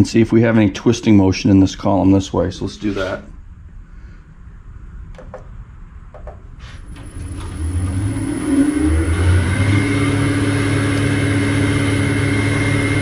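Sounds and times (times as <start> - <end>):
band saw running with whine: 7.0 - 13.0.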